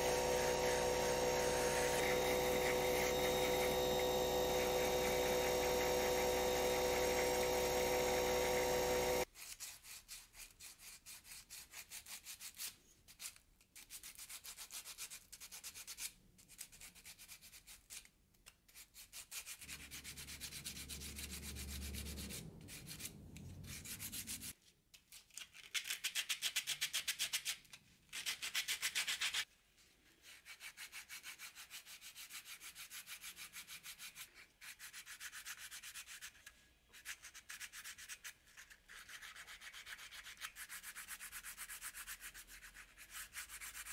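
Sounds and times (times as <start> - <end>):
rotary tool whining: 0.0 - 9.2, 19.7 - 24.5
sandpaper strokes on wood: 0.0 - 16.0, 18.8 - 24.5, 30.2 - 36.4, 37.0 - 43.9.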